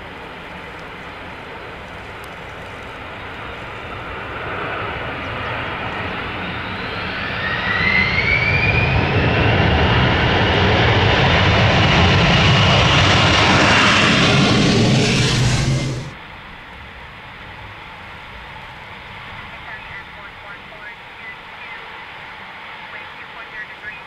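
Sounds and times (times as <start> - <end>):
jet airliner passing low: 0.0 - 24.0
jet engine whine: 0.0 - 24.0.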